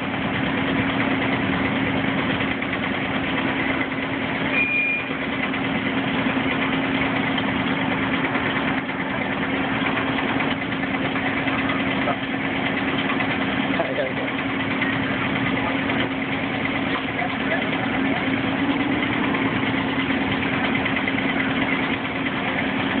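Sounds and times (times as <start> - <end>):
locomotive engine hum: 0.0 - 23.0
brief high squeak: 4.5 - 5.2.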